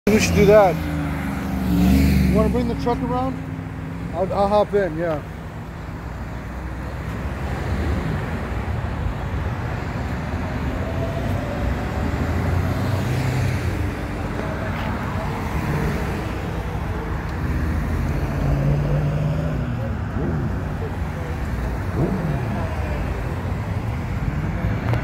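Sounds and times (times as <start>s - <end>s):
cars driving past: 0.1s - 25.0s.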